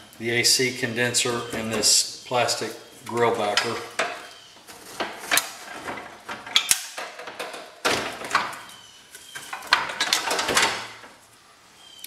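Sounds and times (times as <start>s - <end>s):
rubbing and rustling: 2.6s - 11.4s.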